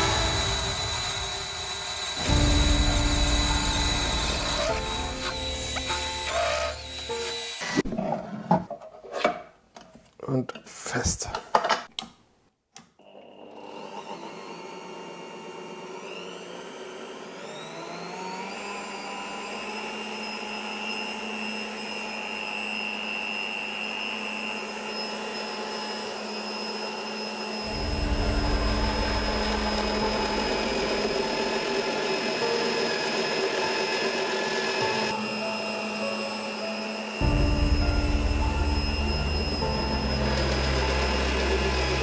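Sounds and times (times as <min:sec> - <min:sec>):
drill bit cutting steel rumble: 0:00.0 - 0:07.8, 0:17.4 - 0:42.0
drill press motor whine: 0:00.0 - 0:07.8, 0:13.0 - 0:42.0.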